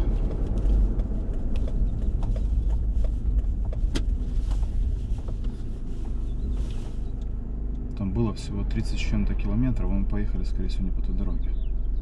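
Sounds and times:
road and engine rumble: 0.0 - 12.0.

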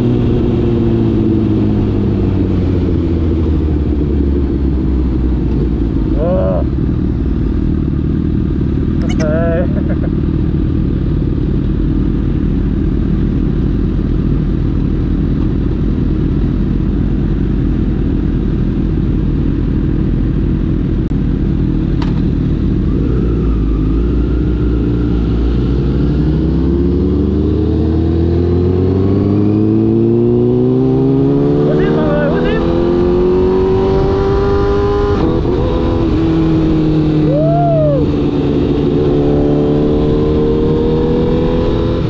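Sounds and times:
short click: 9.0 - 9.3
motorcycle engine revving: 21.6 - 42.0.

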